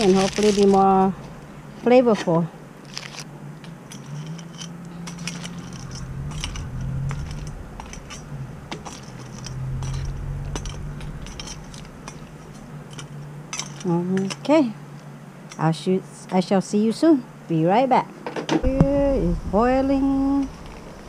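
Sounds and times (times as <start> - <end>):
metal spoon scraping stock pot: 3.9 - 14.6
low rumble: 5.0 - 13.2, 18.6 - 21.0.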